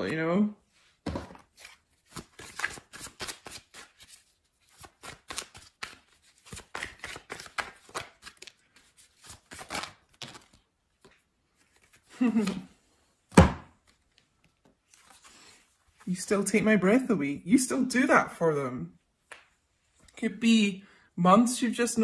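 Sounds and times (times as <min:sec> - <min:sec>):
cards being shuffled: 0:01.1 - 0:12.8, 0:13.7 - 0:16.1.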